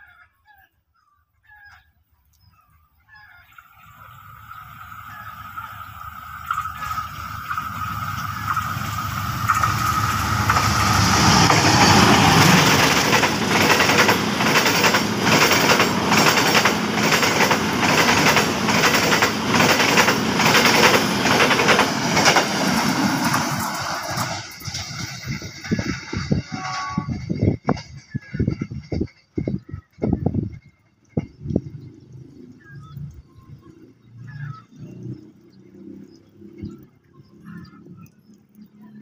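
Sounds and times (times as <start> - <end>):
train rumble: 4.1 - 32.4
train wheels clickety-clack: 6.5 - 31.8.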